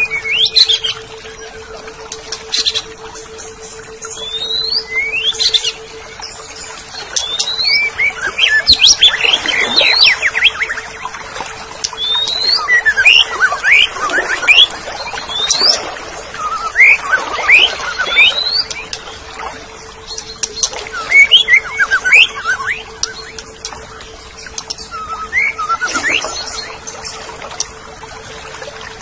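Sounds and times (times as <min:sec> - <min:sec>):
bird chattering song: 0:20.0 - 0:27.7.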